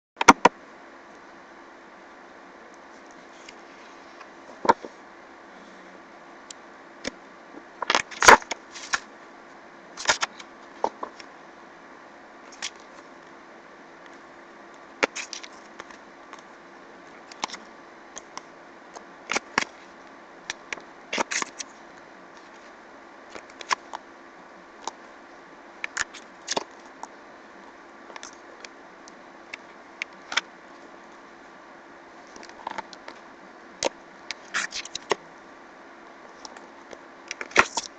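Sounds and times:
faint hum: 0.2 - 37.9
book pages turning: 7.8 - 9.1, 10.0 - 11.3, 12.5 - 13.1, 15.0 - 16.5, 17.2 - 17.7, 19.0 - 21.7, 23.3 - 24.0, 34.3 - 35.2, 37.3 - 37.9.

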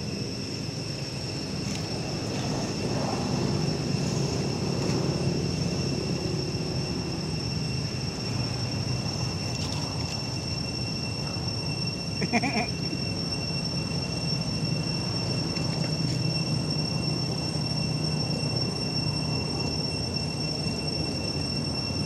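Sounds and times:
high-pitched two-tone drone: 0.0 - 22.0
macaque call: 12.2 - 12.8.

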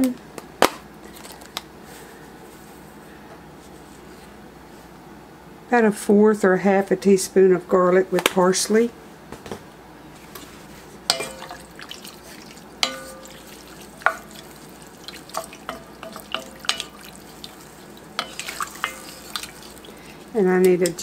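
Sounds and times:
spoon stirring beans in liquid: 10.4 - 21.0
wooden spoon knocking pot: 11.1 - 11.9, 12.8 - 17.6, 18.2 - 19.8.

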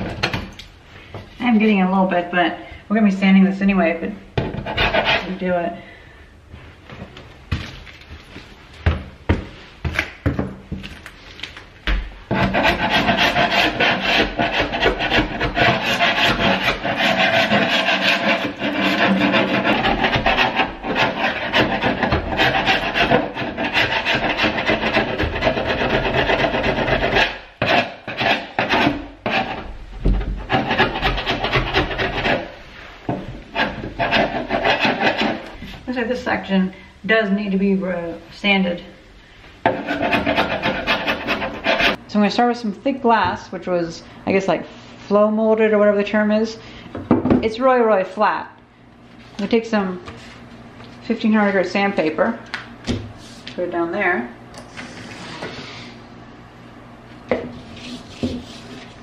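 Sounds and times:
chisel scraping paint off wood: 4.4 - 5.4, 12.3 - 32.6, 33.6 - 35.5, 39.7 - 42.0.

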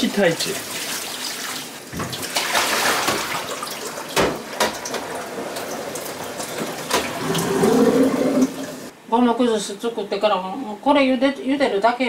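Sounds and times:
water running from tap into sink: 0.0 - 8.9.

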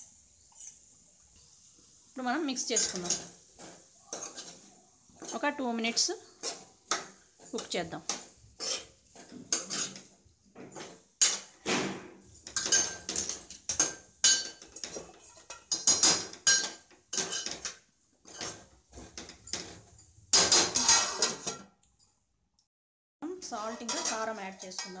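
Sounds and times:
metal spatula scraping pan: 2.6 - 11.6, 12.3 - 21.6, 23.5 - 25.0.

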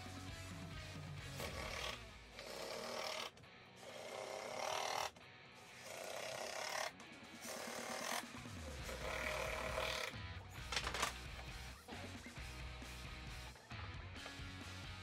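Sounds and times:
impact driver driving screws: 1.3 - 5.2, 5.8 - 10.2.

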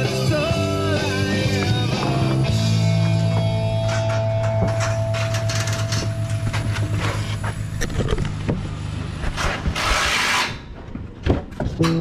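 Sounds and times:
hand tools knocking and scraping: 3.0 - 8.6
loud rasping scrape: 9.4 - 10.7.

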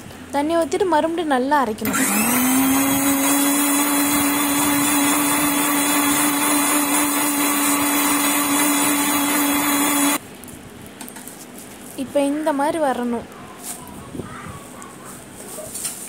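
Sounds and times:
mixer grinder motor running: 1.8 - 10.2.

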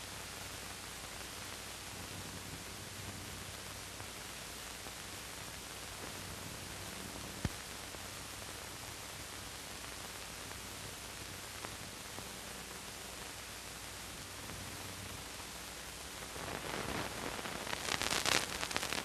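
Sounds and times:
film soundtrack hiss: 0.0 - 19.0
irregular crackling: 16.2 - 19.0.

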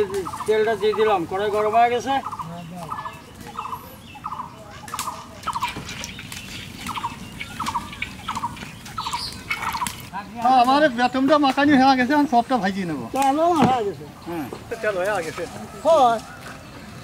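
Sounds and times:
fowl calling: 0.0 - 10.1.

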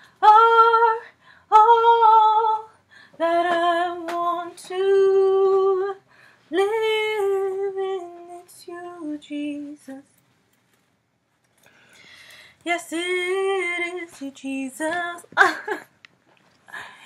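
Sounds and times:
woman singing unaccompanied: 0.0 - 10.2, 12.6 - 15.8.

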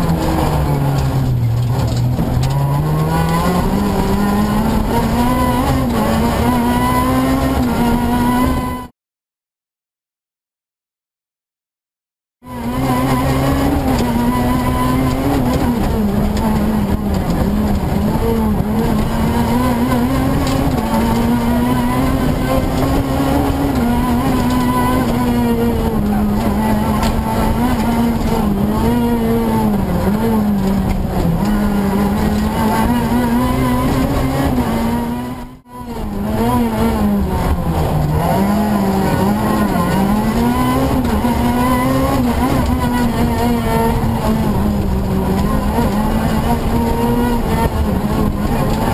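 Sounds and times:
rally car engine revving: 0.0 - 8.9, 12.4 - 48.9.

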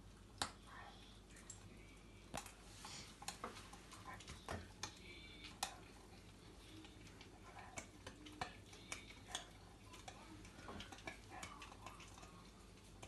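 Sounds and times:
puppy chewing food: 0.0 - 13.0
teeth crunching clicks: 4.3 - 13.0.

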